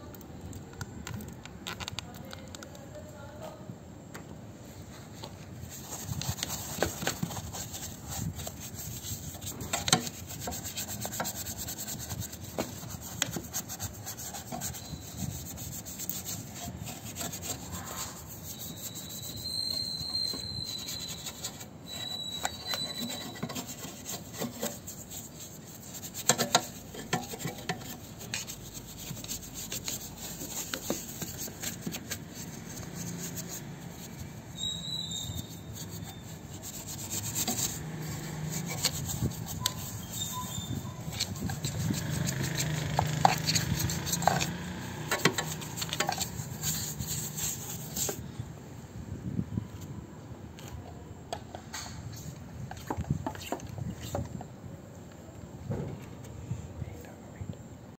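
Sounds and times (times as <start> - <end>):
brush scrubbing metal: 5.6 - 48.2.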